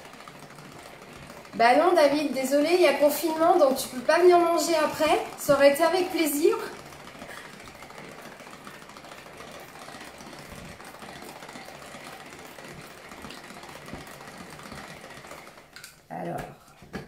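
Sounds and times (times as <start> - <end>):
hand-cranked whipper whirring rattle: 0.0 - 17.0.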